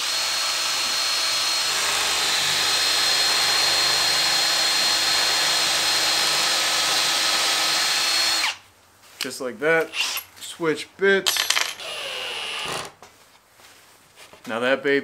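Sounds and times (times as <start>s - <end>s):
cordless drill driving screw: 0.0s - 8.6s, 10.0s - 10.3s, 11.8s - 12.9s.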